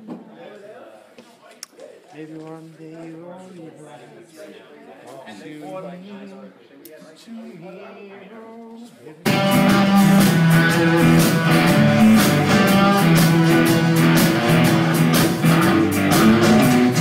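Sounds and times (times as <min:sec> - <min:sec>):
bass guitar: 0:09.3 - 0:17.0
electric guitars: 0:09.3 - 0:17.0
steady drum beat: 0:09.3 - 0:17.0.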